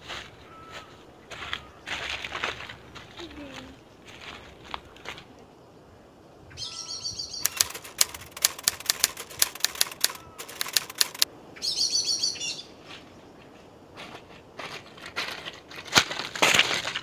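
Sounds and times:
typewriter key clacks: 0:07.4 - 0:11.2
typewriter fluttering rattle: 0:07.4 - 0:11.3.

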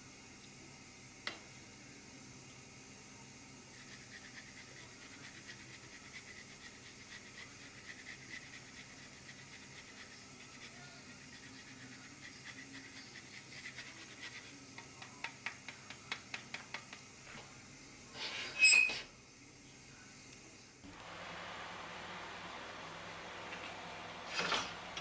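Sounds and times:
cheese grater rasping: 0:03.7 - 0:14.5.

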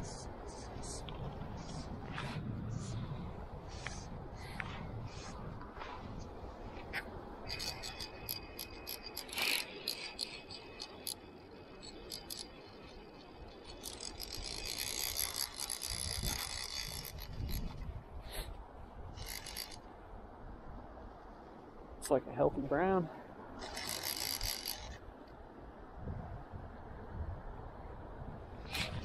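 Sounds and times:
fly reel ratchet clicking: 0:07.5 - 0:17.8, 0:19.2 - 0:19.8, 0:23.6 - 0:25.0.

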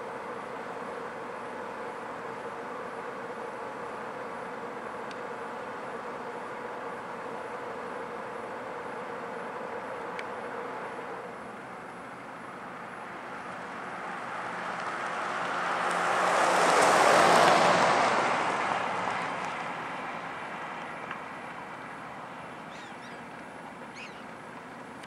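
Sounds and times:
motor vehicle passing by: 0:13.6 - 0:19.4.

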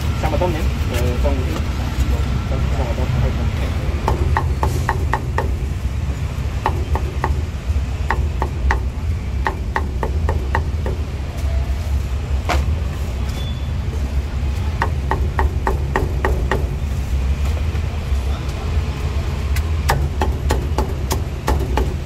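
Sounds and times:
cleaver chopping on wooden block: 0:06.6 - 0:07.5, 0:08.1 - 0:11.1, 0:19.9 - 0:22.0.

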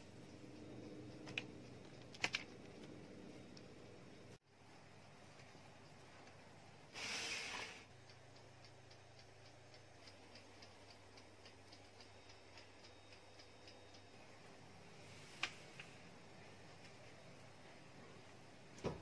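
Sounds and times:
faint even ticking: 0:00.0 - 0:06.8, 0:07.9 - 0:14.8
low hum: 0:00.0 - 0:06.9
rush of hiss: 0:06.9 - 0:07.9.

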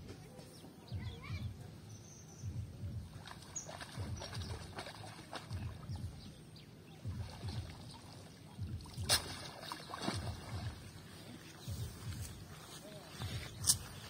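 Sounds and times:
water splashing and dripping: 0:02.8 - 0:06.4, 0:07.0 - 0:12.5.

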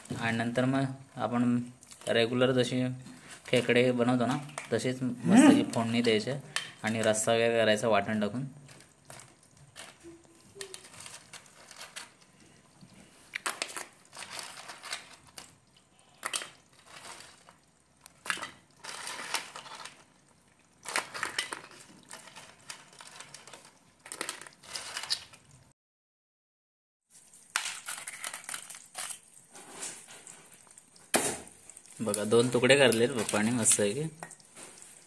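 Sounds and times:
crab shells clicking and crackling: 0:08.6 - 0:25.6, 0:27.1 - 0:35.0.

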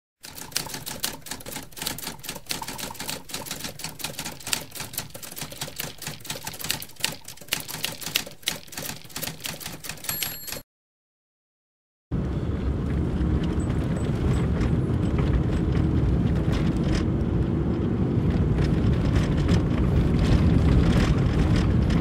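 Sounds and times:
typewriter keys clacking: 0:00.2 - 0:10.6
typewriter bell ring: 0:01.9 - 0:10.6.

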